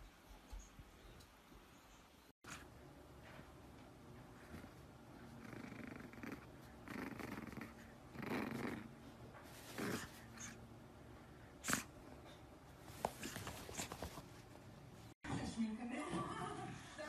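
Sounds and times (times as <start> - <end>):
puppy grunting: 5.4 - 9.0.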